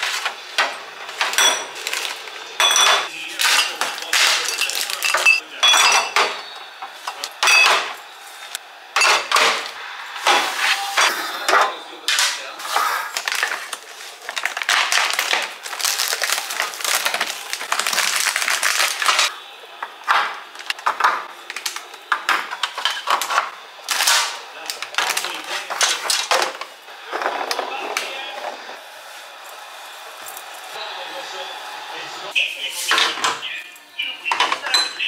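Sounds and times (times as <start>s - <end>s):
glass bottles clinking: 1.1s - 8.0s, 9.0s - 9.6s, 34.3s - 35.0s
plastic pack crackling: 1.8s - 2.4s, 3.3s - 5.3s, 13.0s - 19.3s.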